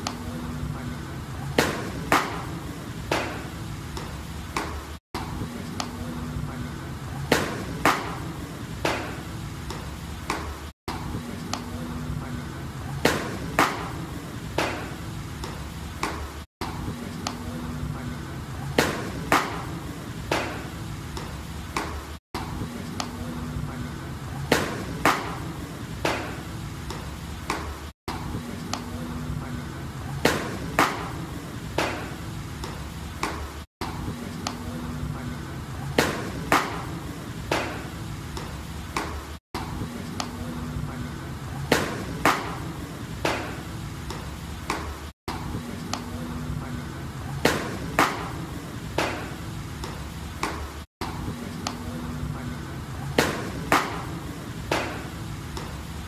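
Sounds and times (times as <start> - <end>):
baseballs popping into mitts: 1.6 - 4.8.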